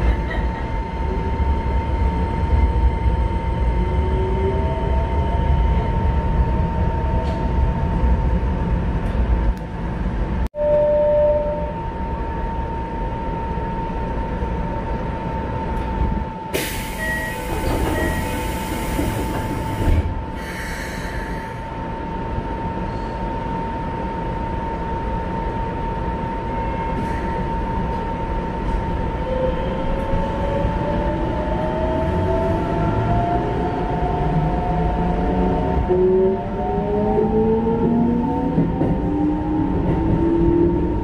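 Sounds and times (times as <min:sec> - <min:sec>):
train equipment hum: 0:00.0 - 0:41.0
train inverter whine: 0:00.0 - 0:41.0
short beeps: 0:10.6 - 0:11.8
train doors hissing: 0:16.5 - 0:21.6.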